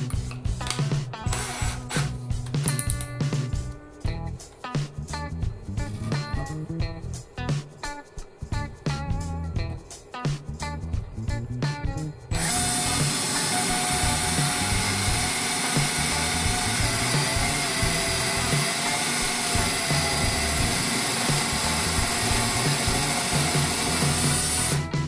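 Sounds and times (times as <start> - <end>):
drill boring into wood: 1.3 - 2.1, 12.3 - 24.8.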